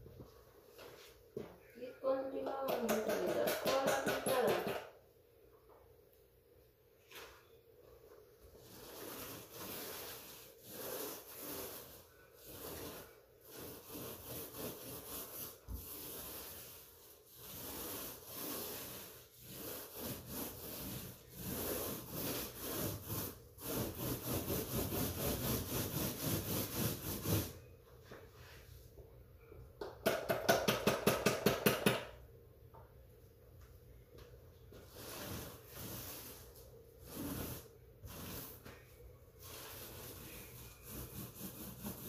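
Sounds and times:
hand scraper scraping drywall: 8.6s - 27.6s, 34.9s - 38.8s, 39.4s - 42.0s.

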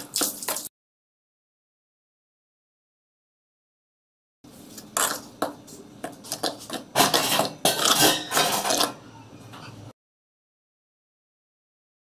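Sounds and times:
spoon scraping flour in steel bowl: 4.7s - 9.0s.

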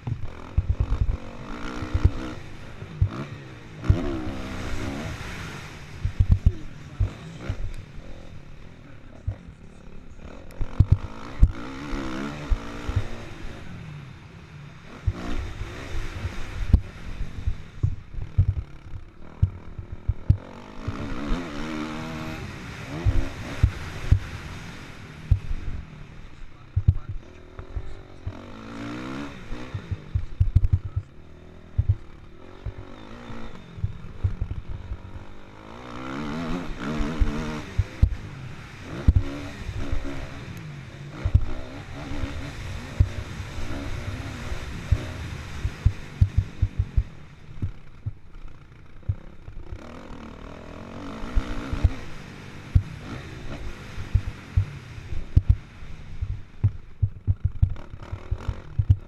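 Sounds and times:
motorcycle engine revving: 0.0s - 59.0s
wind thuds on microphone: 6.0s - 7.1s, 16.2s - 18.7s, 26.8s - 27.2s, 29.8s - 31.0s, 31.8s - 32.0s, 44.9s - 48.2s, 54.1s - 55.6s, 56.2s - 59.0s.

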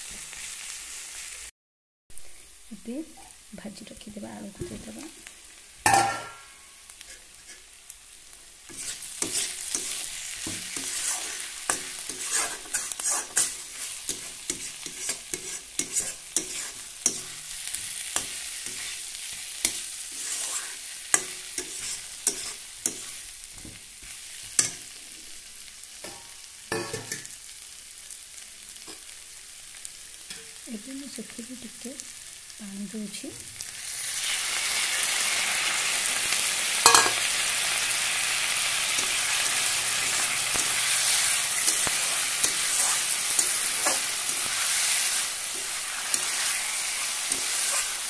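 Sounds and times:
oil sizzling: 0.0s - 1.5s, 2.2s - 48.0s
spatula scraping and clacking on pan: 5.8s - 7.8s, 8.6s - 25.3s, 26.0s - 27.4s, 28.8s - 29.2s, 36.8s - 37.4s, 38.8s - 48.0s
sharp knocks on pan: 5.9s - 6.5s.

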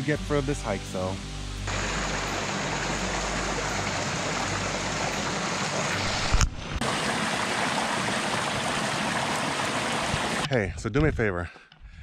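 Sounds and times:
stream rushing over rocks: 1.7s - 10.5s.

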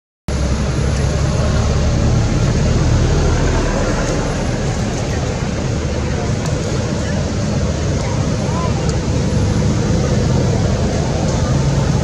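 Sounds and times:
low rumbling background noise: 0.3s - 12.0s.

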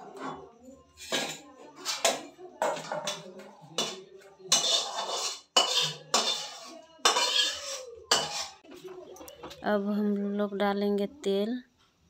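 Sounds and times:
metal pans clanking on stove: 0.0s - 8.9s.

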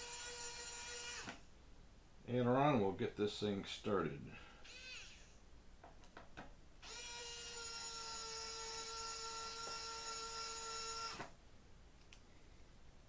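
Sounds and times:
electric screwdriver whining: 0.0s - 1.4s, 4.6s - 5.4s, 6.8s - 11.4s.

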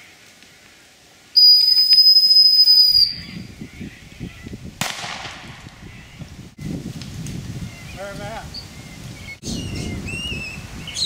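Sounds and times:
rustling through brush: 0.0s - 1.8s
sharp crackle: 0.0s - 3.4s, 4.4s - 6.0s
dog whistle blast: 1.4s - 3.3s.

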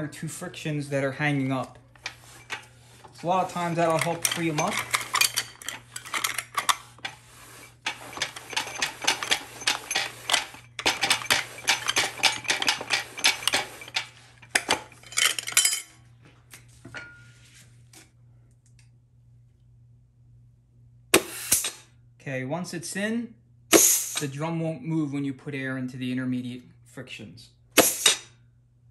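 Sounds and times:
metallic clattering of steel parts: 1.2s - 16.0s.

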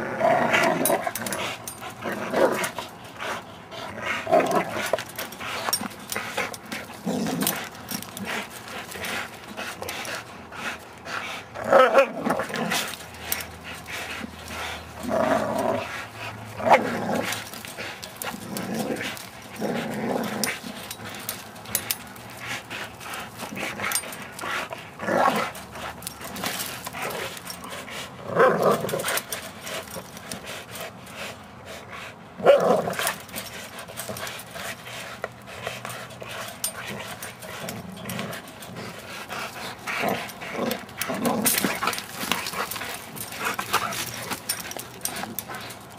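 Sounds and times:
dogs growling: 0.0s - 45.9s
light clicks and rattles: 4.3s - 11.0s, 12.2s - 28.0s, 32.8s - 45.9s.

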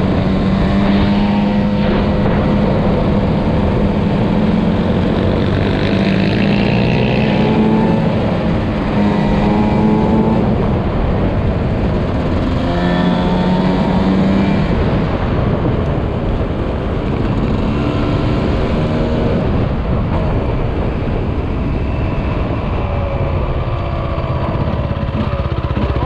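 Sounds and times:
wind rush on microphone: 0.0s - 26.0s
dirt bike engine running: 19.5s - 26.0s.

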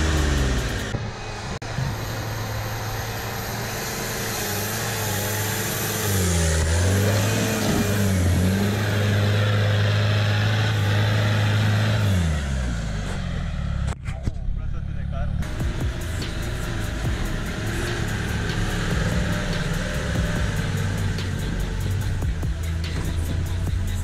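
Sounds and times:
pickup truck engine running: 0.0s - 24.0s.

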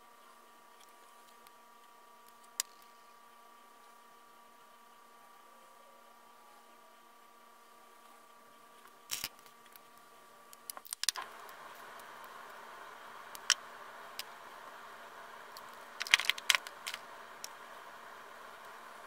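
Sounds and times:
makeup containers clicking: 16.0s - 17.0s.

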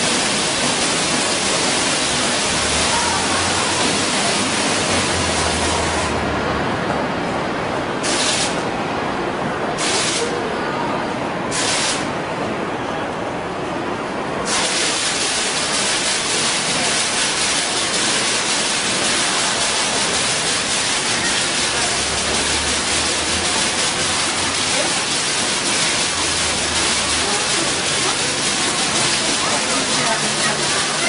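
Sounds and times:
water splashing into basin: 14.5s - 31.0s.

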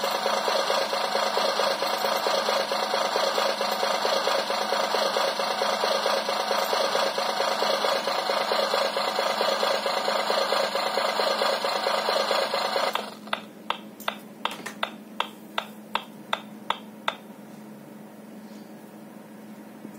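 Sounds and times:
evenly spaced clicks: 0.1s - 14.2s.

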